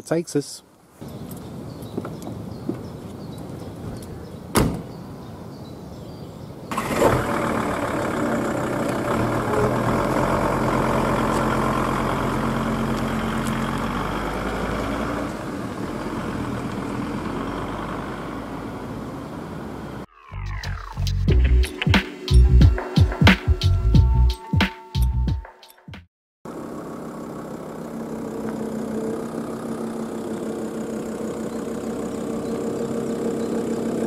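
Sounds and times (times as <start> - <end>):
van door slamming: 4.5 - 5.0
van engine starting and running: 6.7 - 21.6, 26.5 - 34.0.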